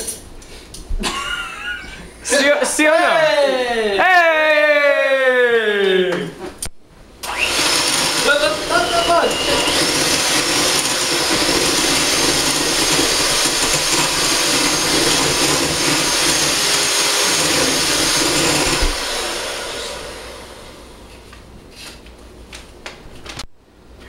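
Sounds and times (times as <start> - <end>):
electric hand mixer running: 7.2 - 21.1.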